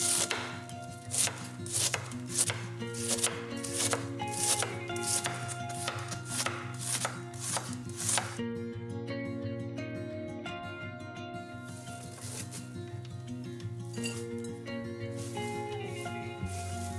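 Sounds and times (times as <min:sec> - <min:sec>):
knife slicing cabbage on board: 0:00.0 - 0:08.4, 0:12.0 - 0:12.7, 0:15.2 - 0:16.9.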